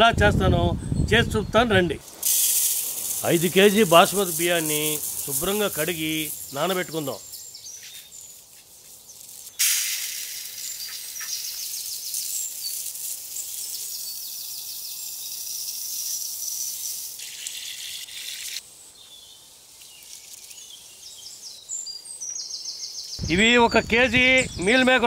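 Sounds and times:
rice pouring into steel pot: 0:02.2 - 0:07.0, 0:09.6 - 0:10.8
faint birds chirping: 0:05.2 - 0:09.6.

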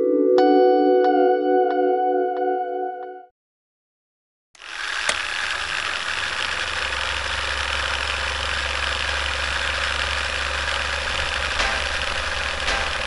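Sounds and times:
film projector rattling: 0:04.6 - 0:13.0.

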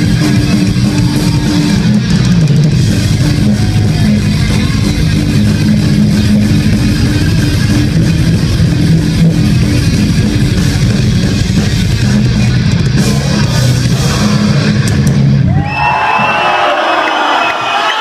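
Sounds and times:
audience cheering and shouting: 0:00.0 - 0:06.8, 0:13.9 - 0:18.0
metal band playing live: 0:00.0 - 0:16.6.

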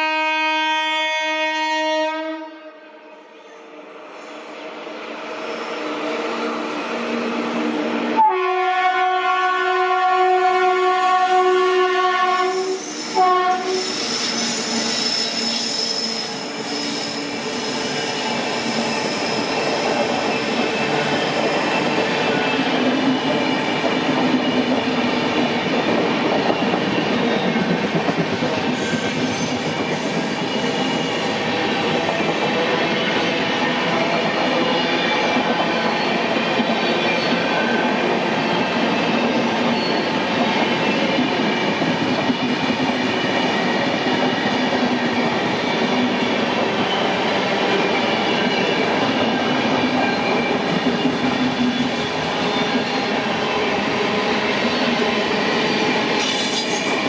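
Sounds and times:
locomotive horn blasts: 0:00.0 - 0:02.8, 0:08.2 - 0:12.5, 0:13.2 - 0:13.8
high wheel squeal: 0:12.5 - 0:22.6, 0:28.4 - 0:33.6.

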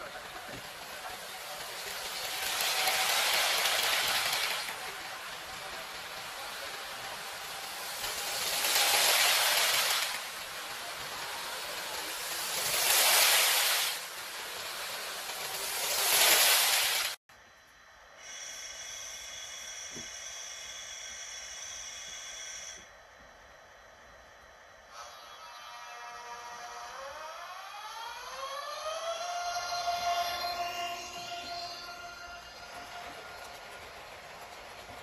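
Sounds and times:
model train whooshing: 0:00.0 - 0:17.2, 0:28.4 - 0:35.0.

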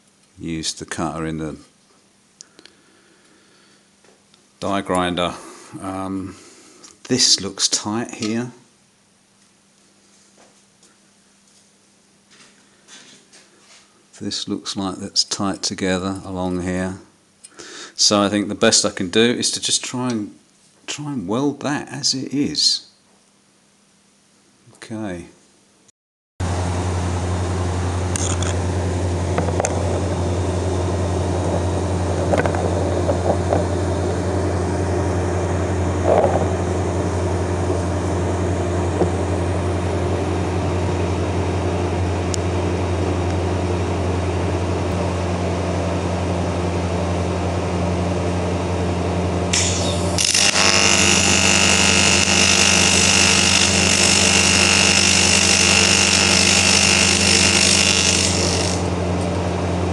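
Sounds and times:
low hum: 0:26.4 - 0:59.9
welding arc buzzing hiss: 0:26.7 - 0:41.0, 0:49.4 - 0:59.6
small knocks: 0:32.2 - 0:33.7, 0:36.1 - 0:36.5.

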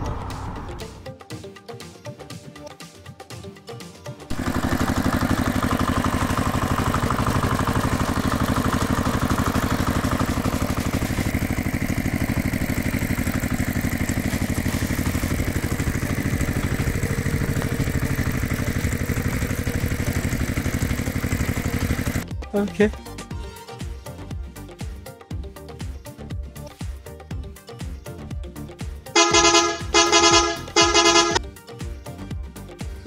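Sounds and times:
motor chugging: 0:04.3 - 0:22.2, 0:29.2 - 0:31.4.

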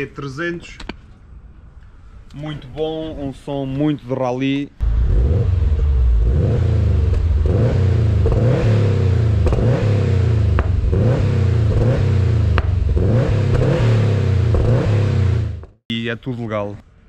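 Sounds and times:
car engine revving: 0:04.8 - 0:15.8
sharp exhaust pops: 0:04.8 - 0:15.8.

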